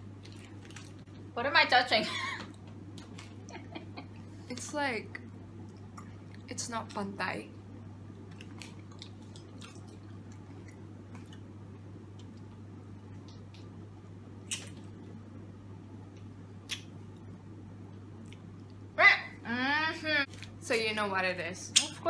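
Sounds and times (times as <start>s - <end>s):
steady low hum: 0.0s - 22.0s
wet kissing sounds: 14.5s - 14.8s, 16.7s - 17.0s.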